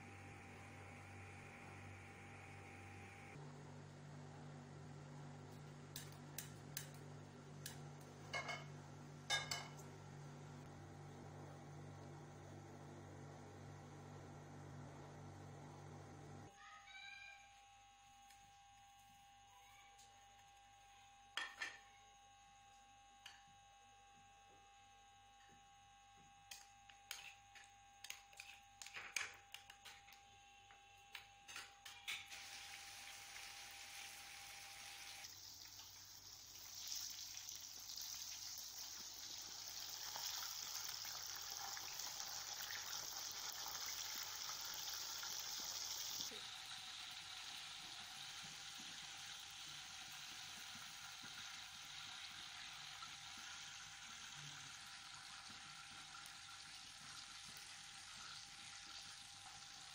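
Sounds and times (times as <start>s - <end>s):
patties sizzling in hot oil: 31.9s - 59.9s.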